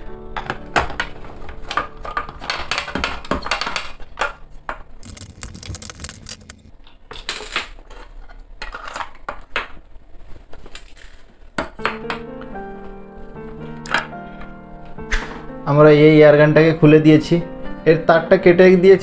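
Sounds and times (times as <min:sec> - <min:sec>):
screwdriver clicking and scraping: 0:05.0 - 0:06.7.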